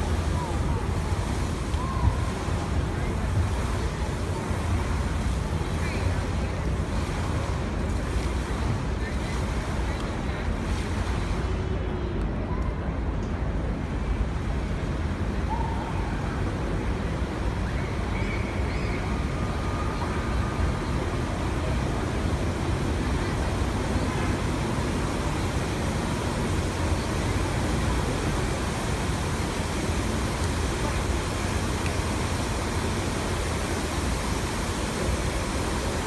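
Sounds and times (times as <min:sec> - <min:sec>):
fountain water jets splashing: 0:00.0 - 0:36.0.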